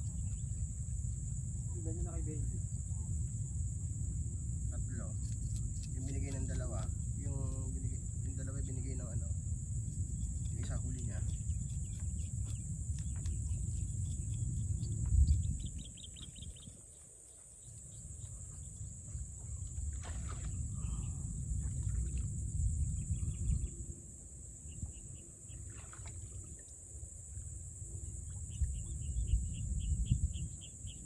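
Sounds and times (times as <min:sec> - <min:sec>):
wind buffeting microphone: 0:10.0 - 0:17.0, 0:17.9 - 0:26.5, 0:28.4 - 0:31.0
birds chirping: 0:10.5 - 0:21.4.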